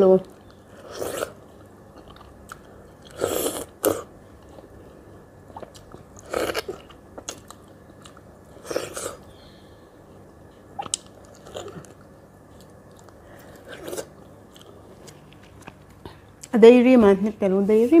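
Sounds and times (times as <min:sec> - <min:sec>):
mouth chewing sounds: 0:05.4 - 0:09.2.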